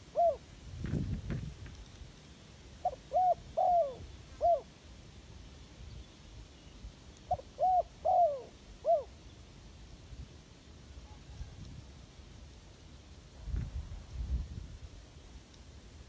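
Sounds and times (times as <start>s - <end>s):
dove cooing: 0.0s - 0.4s, 2.8s - 4.7s, 7.3s - 9.2s.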